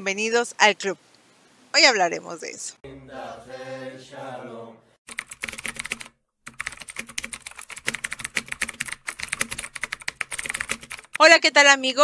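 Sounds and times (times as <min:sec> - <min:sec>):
keyboard typing clicks: 0:05.1 - 0:11.2.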